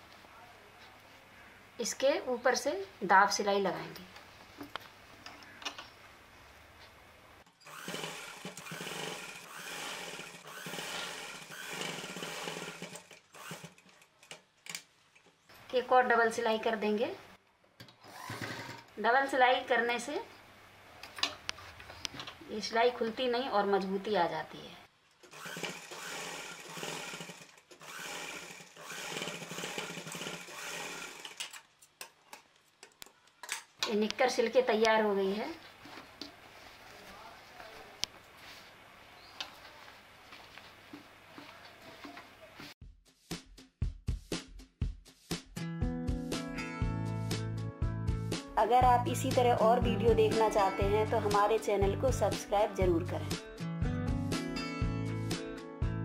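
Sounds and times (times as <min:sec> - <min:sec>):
sewing machine running: 0:07.6 - 0:14.0, 0:18.1 - 0:18.9, 0:25.2 - 0:31.6.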